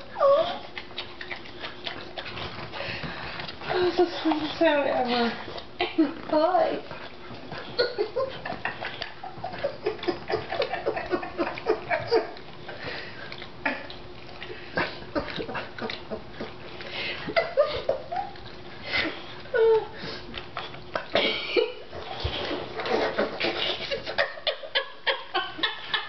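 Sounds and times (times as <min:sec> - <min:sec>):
dog licking wetly: 0:00.6 - 0:21.2.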